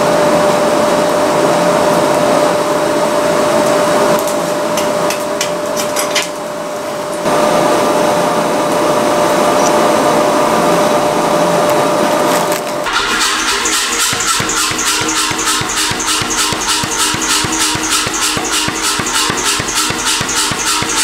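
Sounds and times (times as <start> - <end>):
mechanical whirr with hum: 0.0 - 21.0
music: 13.1 - 21.0.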